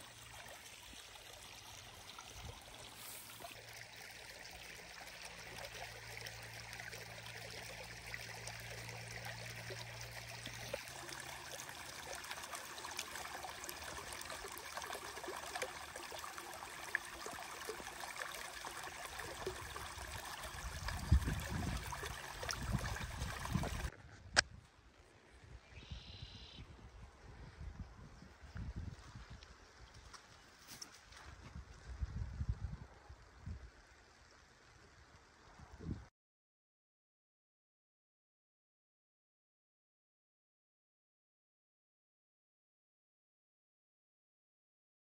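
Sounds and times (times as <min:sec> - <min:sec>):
water runoff streaming: 0:00.0 - 0:23.9.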